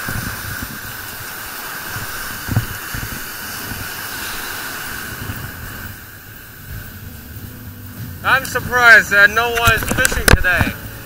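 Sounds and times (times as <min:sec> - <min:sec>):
ocean surf breaking on beach: 0:00.0 - 0:11.0.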